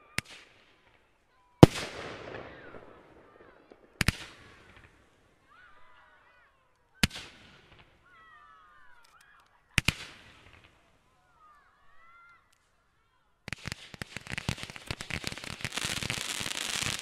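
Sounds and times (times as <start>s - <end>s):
fireworks bangs echoing: 1.6s - 5.2s, 13.5s - 17.0s.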